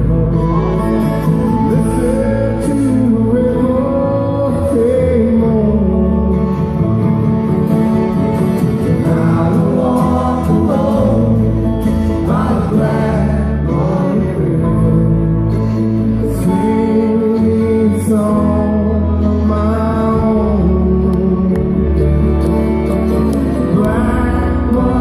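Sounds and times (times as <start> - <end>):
acoustic guitar: 0.0 - 25.0
banjo: 0.0 - 25.0
fiddle: 0.0 - 25.0
mandolin: 0.0 - 25.0
upright bass: 0.0 - 25.0
voices singing: 8.7 - 21.3.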